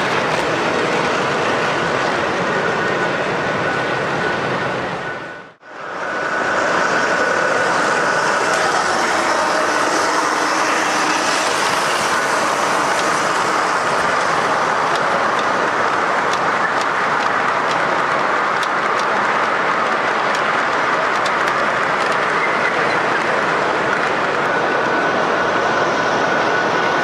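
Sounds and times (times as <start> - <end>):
hum of a busy hall: 0.0 - 27.0
model train wheels rolling on track: 5.8 - 27.0.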